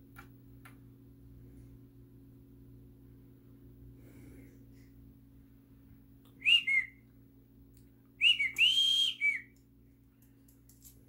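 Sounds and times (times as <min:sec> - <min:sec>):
person whistling short notes: 0:06.4 - 0:07.0, 0:08.2 - 0:09.6.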